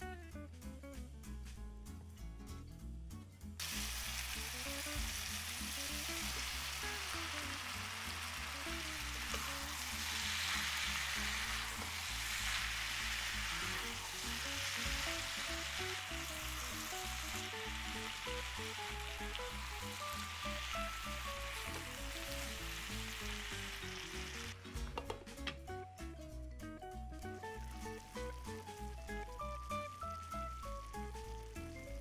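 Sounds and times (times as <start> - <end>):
background music with bass: 0.0 - 32.0
vegetables sizzling in a frying pan: 3.6 - 24.6, 27.2 - 32.0
spatula stirring: 9.1 - 22.0.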